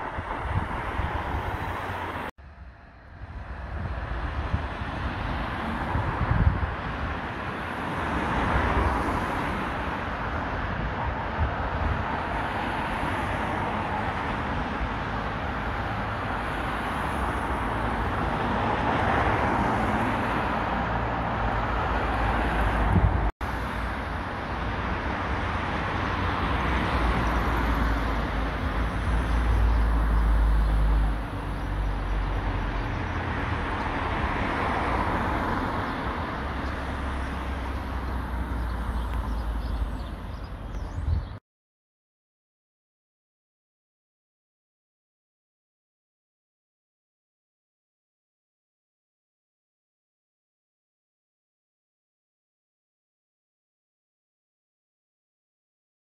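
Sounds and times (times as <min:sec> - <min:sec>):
outdoor traffic noise: 0:00.0 - 0:41.4
wind rumbling on microphone: 0:00.0 - 0:41.4.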